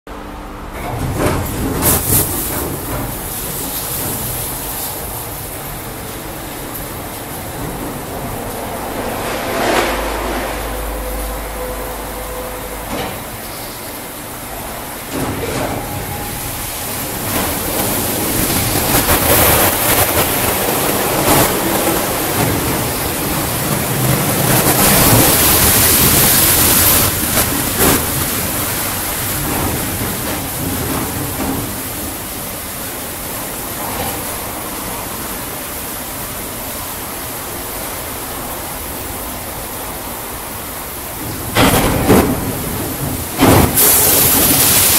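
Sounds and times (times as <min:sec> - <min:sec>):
water spray: 0:43.5 - 0:44.9.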